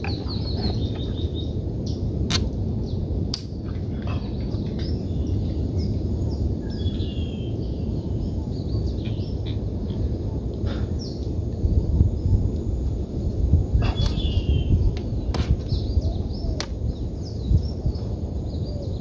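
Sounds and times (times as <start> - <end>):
birds chirping: 0.0 - 2.1, 2.8 - 19.0
low rumble: 0.0 - 19.0
sharp clicks: 2.3 - 2.6.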